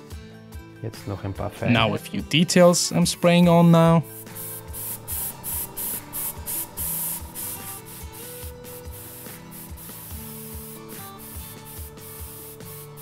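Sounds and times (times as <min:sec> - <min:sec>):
background music: 0:00.0 - 0:13.0
airbrush hissing in bursts: 0:03.5 - 0:13.0.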